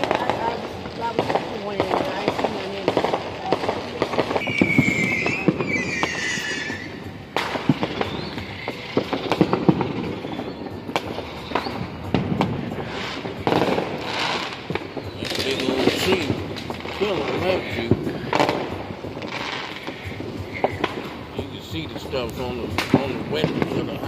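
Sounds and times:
fireworks bangs and crackles: 0.0 - 24.0
firework whistle sliding down: 4.4 - 7.1.

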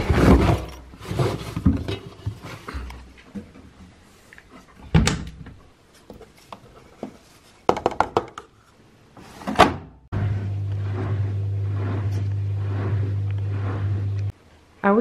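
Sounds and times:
low hum: 10.1 - 14.4.

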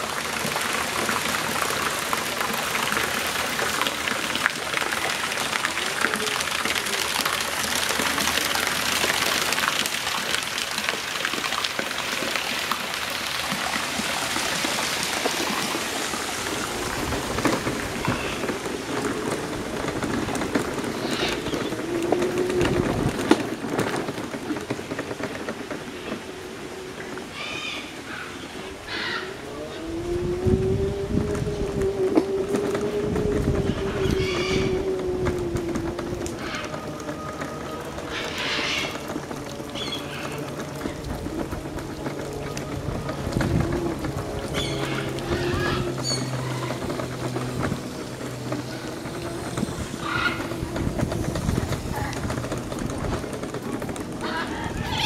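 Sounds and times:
rain-like rushing noise: 0.0 - 55.0
low rumbling: 11.6 - 55.0.

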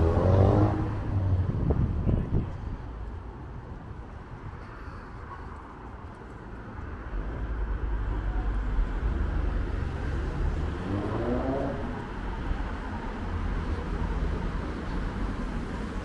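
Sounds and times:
cars passing: 0.0 - 16.0.

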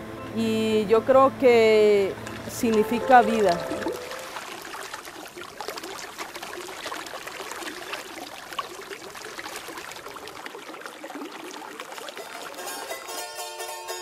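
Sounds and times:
water splashing and trickling: 1.9 - 14.0.

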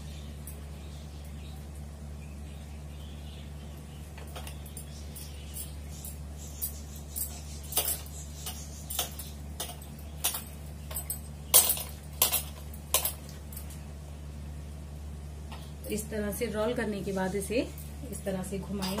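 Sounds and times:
steady low hum: 0.0 - 19.0
light clinks and taps: 4.1 - 13.8.

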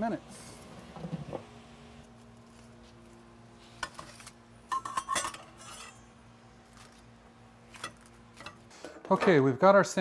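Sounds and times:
metal spatula scraping foil and grill: 3.6 - 7.0, 7.7 - 8.8.

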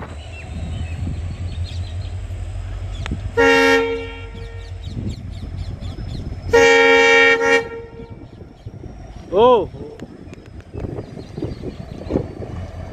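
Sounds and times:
moving train rumble: 0.0 - 12.9
train horn blasts: 3.2 - 5.1, 6.4 - 8.4.

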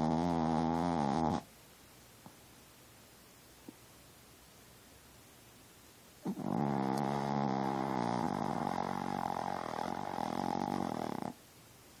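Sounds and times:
dog snoring: 0.0 - 1.5, 6.2 - 11.4.

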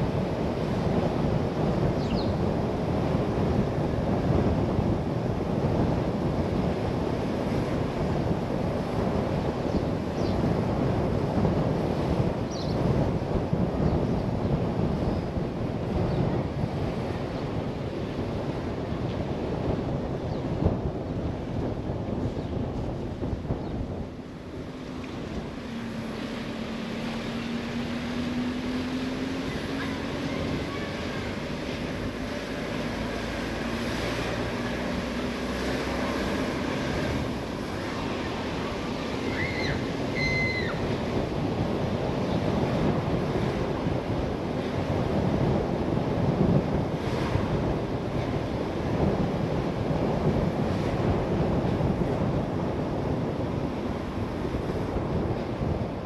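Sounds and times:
road and wind noise: 0.0 - 56.0
faint car engine tone: 24.8 - 40.9.

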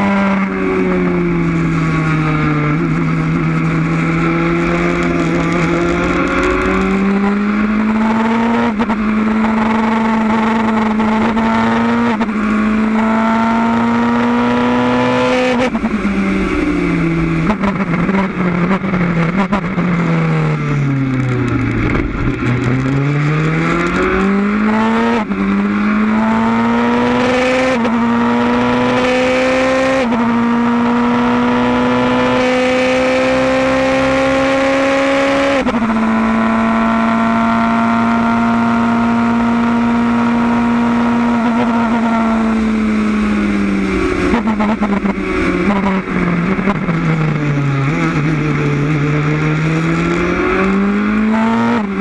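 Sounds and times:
race car engine shifting gears: 2.8 - 16.6.

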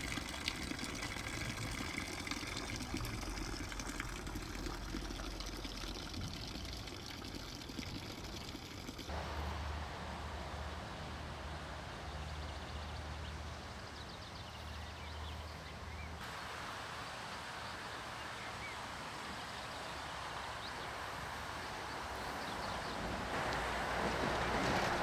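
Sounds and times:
approaching train rushing: 9.1 - 13.5, 22.0 - 25.0
steady low hum: 9.1 - 13.8
small birds chirping: 11.5 - 16.2.

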